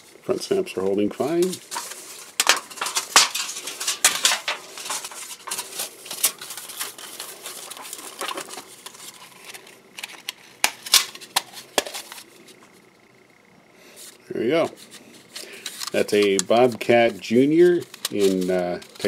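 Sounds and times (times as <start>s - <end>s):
metal sheet rattling: 1.4s - 8.6s.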